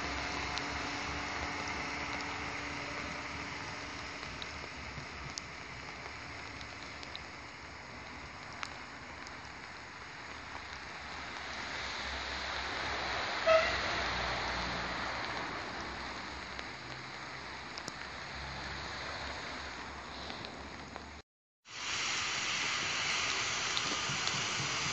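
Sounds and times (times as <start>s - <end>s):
train pulling away: 0.0s - 9.3s, 10.9s - 17.0s, 21.7s - 24.9s
rain hissing: 0.0s - 24.9s
train horn toot: 13.4s - 14.1s.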